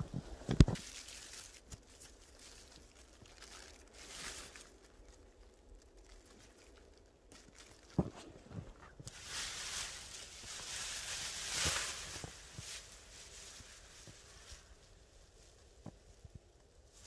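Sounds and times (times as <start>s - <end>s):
plastic sheet and clothing rustling: 0.0s - 17.0s.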